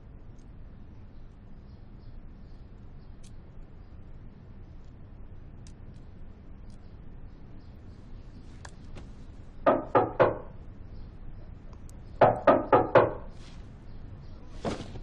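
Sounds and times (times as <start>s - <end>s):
knocking on a door: 9.6s - 10.6s, 12.2s - 13.3s.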